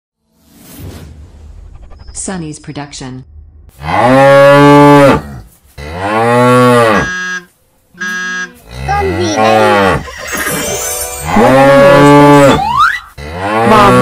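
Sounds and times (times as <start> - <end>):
cattle mooing: 3.8 - 10.1, 11.3 - 14.0.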